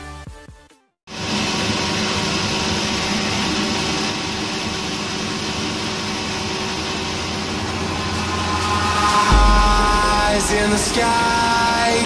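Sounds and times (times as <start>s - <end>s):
band saw machinery humming: 5.0s - 12.0s.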